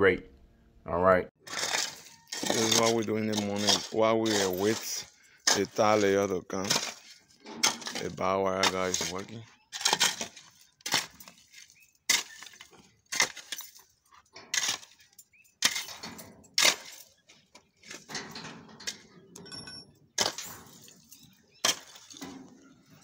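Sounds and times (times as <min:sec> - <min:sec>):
digging tool striking stony ground: 0:01.4 - 0:18.2, 0:20.2 - 0:20.9, 0:21.6 - 0:23.0
quiet scraping on gravel: 0:01.4 - 0:19.4.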